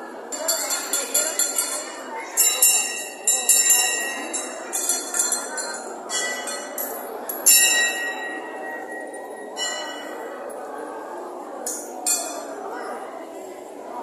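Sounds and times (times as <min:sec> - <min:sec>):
crowd murmur: 0:00.0 - 0:14.0
metal bells ringing: 0:00.3 - 0:10.6.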